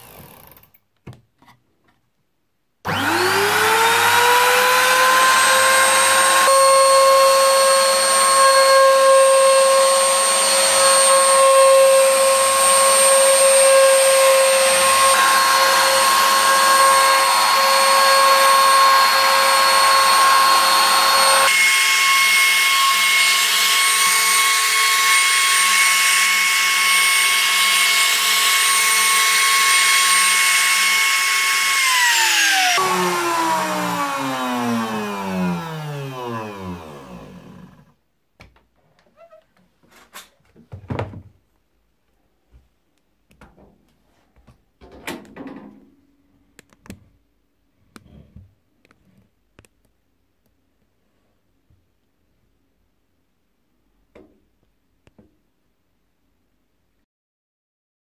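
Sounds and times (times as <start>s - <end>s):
wood router whining: 2.9s - 38.0s.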